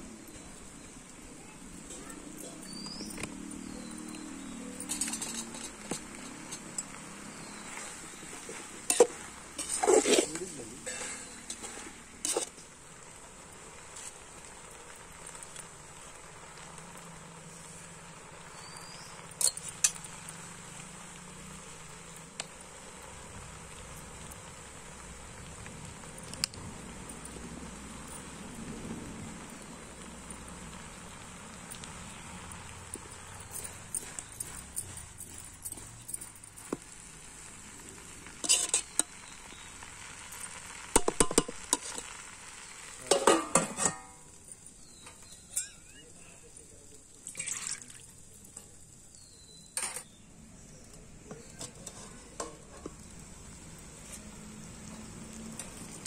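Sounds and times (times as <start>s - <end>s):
outdoor background hiss: 0.0s - 56.0s
steel plate clinking on pot rim: 4.7s - 7.0s, 8.9s - 12.5s, 38.4s - 39.0s, 43.0s - 44.3s, 45.5s - 46.1s
steel plate ringing: 10.8s - 11.8s, 45.5s - 46.1s.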